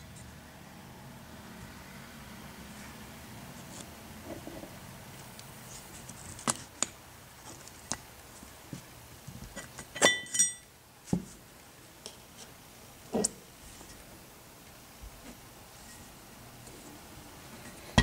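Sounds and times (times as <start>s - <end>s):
ringing metallic clinks: 10.0s - 10.7s.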